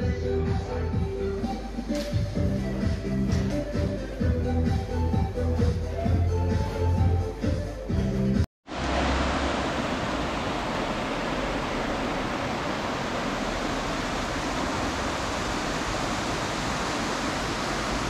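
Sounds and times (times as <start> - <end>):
rushing water: 8.6 - 18.0.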